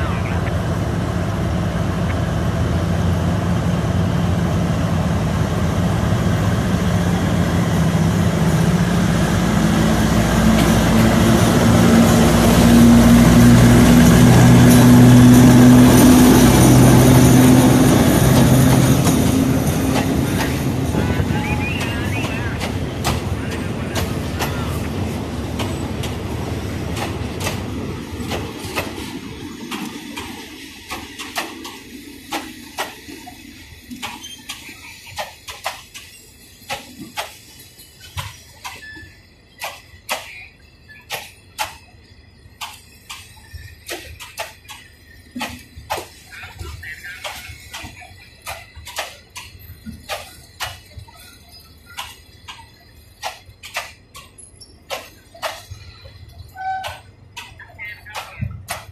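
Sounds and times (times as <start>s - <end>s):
train coaches rumbling: 0.0s - 58.9s
wheels clacking over rail joints: 0.0s - 58.9s.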